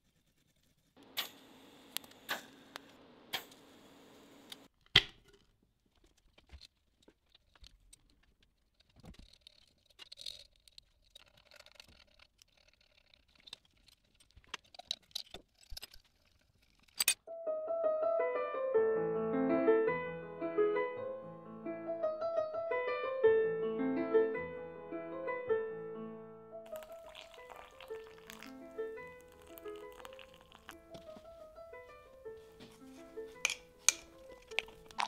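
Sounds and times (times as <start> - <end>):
piano music: 17.2 - 35.0.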